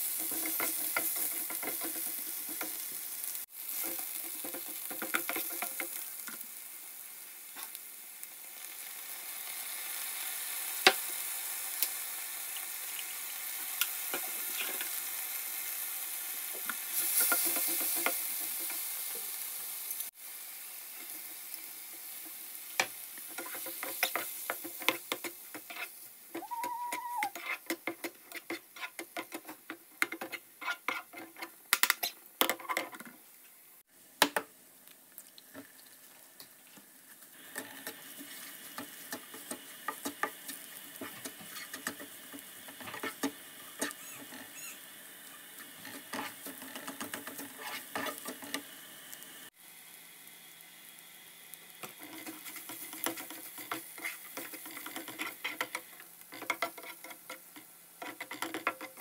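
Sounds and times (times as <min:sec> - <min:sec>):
spatula scraping frying pan: 0:00.1 - 0:03.1, 0:23.2 - 0:31.6, 0:37.4 - 0:48.7, 0:51.8 - 0:59.0.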